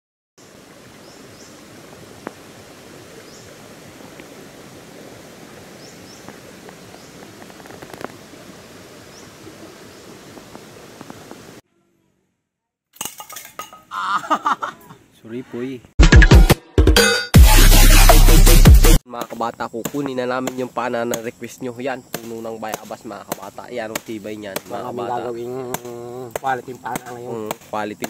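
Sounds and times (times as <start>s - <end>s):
outdoor background noise: 0.4s - 16.0s, 19.0s - 28.0s.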